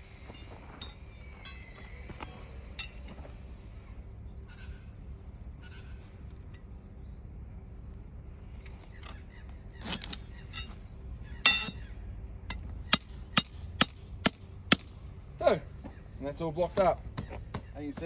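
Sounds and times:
ringing metallic clang: 0:00.3 - 0:01.8, 0:11.4 - 0:11.9
hammer striking steel pin: 0:11.4 - 0:11.8, 0:12.5 - 0:14.9.

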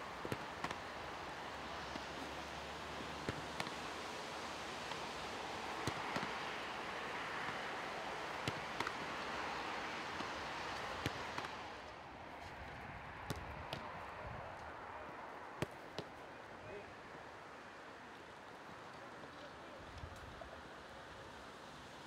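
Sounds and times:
steady outdoor rushing noise: 0:00.0 - 0:22.0
gloves catching ball: 0:00.2 - 0:00.9, 0:03.2 - 0:03.8, 0:05.8 - 0:06.6, 0:08.3 - 0:09.4, 0:10.0 - 0:11.6, 0:13.2 - 0:14.0, 0:15.6 - 0:16.2
boot kicking football: 0:12.4 - 0:14.0.

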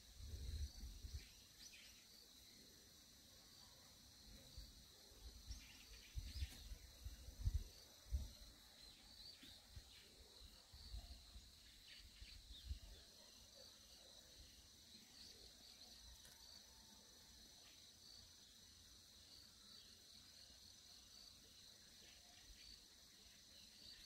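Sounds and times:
insects trilling: 0:00.0 - 0:24.0
bird chirps: 0:05.5 - 0:07.6.

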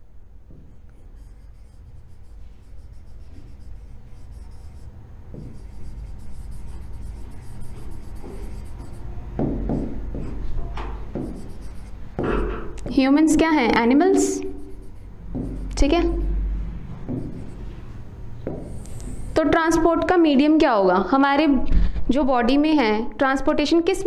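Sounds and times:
low steady hum: 0:00.0 - 0:20.5
stylus scratching on touchscreen: 0:00.7 - 0:12.2, 0:12.8 - 0:16.3, 0:17.1 - 0:17.9, 0:18.5 - 0:19.8.

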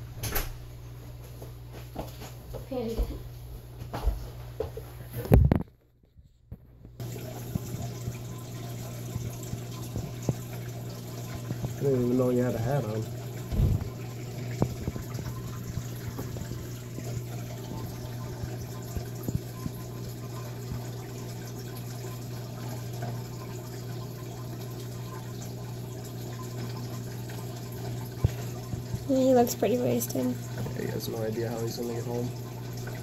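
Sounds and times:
steady low hum: 0:06.2 - 0:33.0
low thump: 0:13.5 - 0:13.9.

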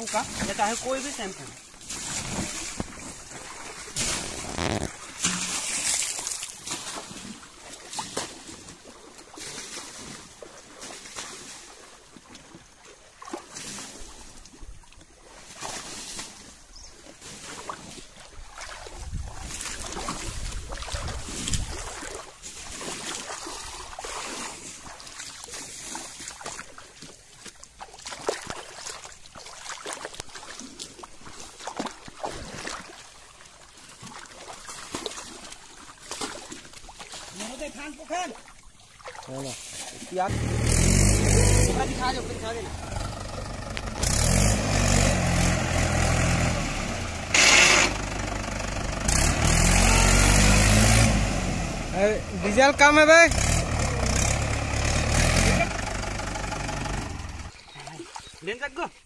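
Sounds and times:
wet rubbing scrubbing: 0:00.0 - 0:06.6
water splashing and trickling: 0:00.0 - 0:47.3, 0:48.0 - 0:59.0
low rumble: 0:40.3 - 0:47.3.

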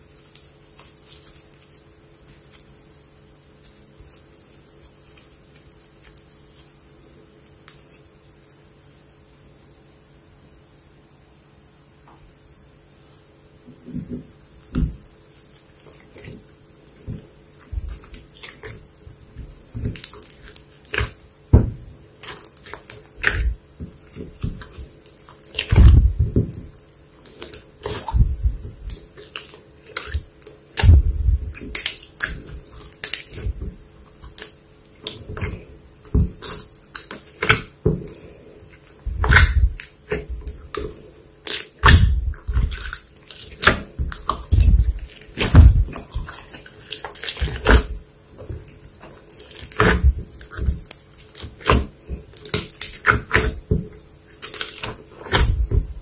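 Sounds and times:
low slime squelches: 0:13.0 - 0:56.0.

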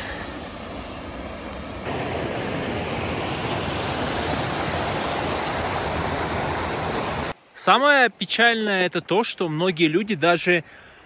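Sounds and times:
waterfall rushing: 0:00.0 - 0:07.4.

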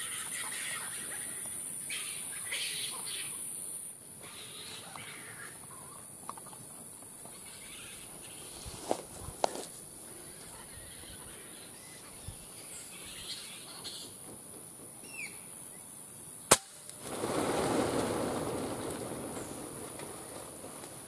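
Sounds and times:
rustling in pine branches: 0:07.6 - 0:09.9
air rifle shot: 0:16.5 - 0:17.0.

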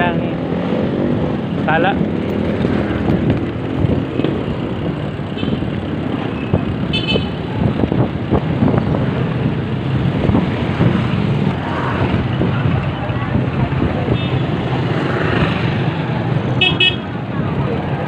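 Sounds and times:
motorcycle engine: 0:00.0 - 0:18.0
vehicle horn beep: 0:06.9 - 0:07.4, 0:16.6 - 0:17.0.

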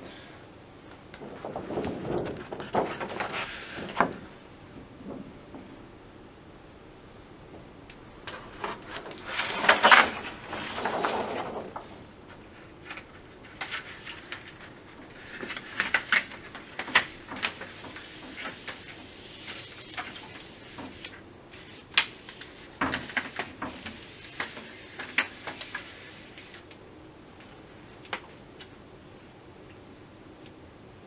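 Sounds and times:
plastic sheet rustling and flexing: 0:01.0 - 0:05.8, 0:08.3 - 0:26.7.

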